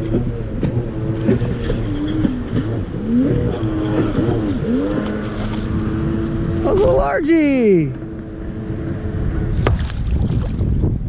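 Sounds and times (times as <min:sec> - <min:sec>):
fish splashing at surface: 0:09.6 - 0:10.6.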